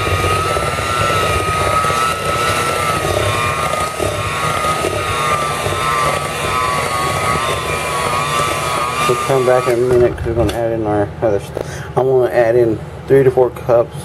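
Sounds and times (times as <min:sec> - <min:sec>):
electric hand mixer whine: 0:00.0 - 0:11.2
beaters churning dough: 0:00.0 - 0:12.7.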